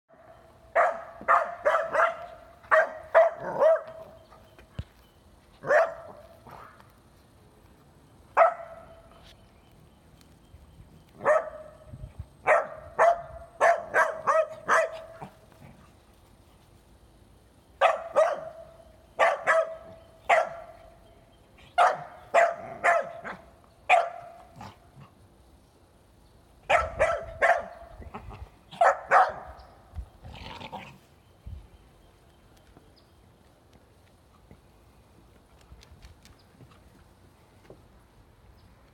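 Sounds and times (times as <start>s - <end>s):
small dog barking: 0.7s - 4.1s, 5.6s - 6.8s, 8.4s - 9.0s, 11.2s - 11.8s, 12.4s - 15.3s, 17.8s - 18.6s, 19.2s - 20.7s, 21.8s - 24.8s, 26.7s - 27.8s, 28.7s - 29.6s.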